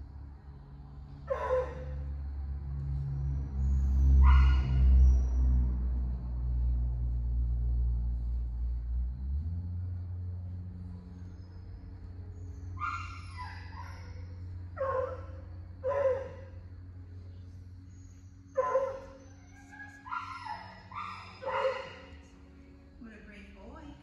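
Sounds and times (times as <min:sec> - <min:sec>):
steady low hum: 0:00.0 - 0:24.0
dog yipping: 0:01.3 - 0:01.9, 0:04.2 - 0:05.1, 0:12.8 - 0:16.5, 0:18.6 - 0:22.2.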